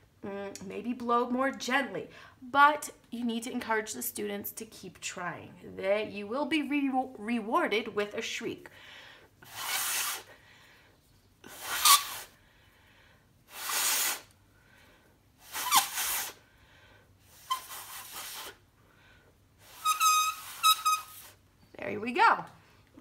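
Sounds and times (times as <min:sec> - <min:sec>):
breaths blown through paper: 0:09.4 - 0:10.3, 0:11.4 - 0:12.4, 0:13.5 - 0:14.4, 0:15.4 - 0:16.4, 0:17.3 - 0:18.6, 0:19.6 - 0:21.4
high paper screech: 0:09.4 - 0:10.3, 0:11.5 - 0:12.3, 0:13.5 - 0:14.3, 0:15.4 - 0:16.4, 0:17.3 - 0:18.6, 0:19.6 - 0:21.4.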